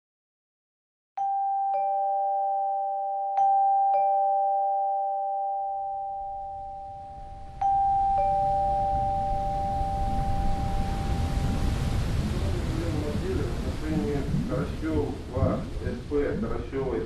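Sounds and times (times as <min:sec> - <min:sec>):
two-tone doorbell chime: 0:01.2 - 0:11.5
rumble and hiss: 0:07.2 - 0:17.0.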